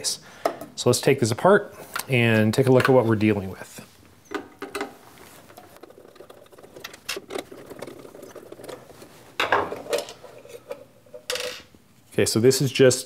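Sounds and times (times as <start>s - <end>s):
plastic parts knocking: 4.3s - 10.2s.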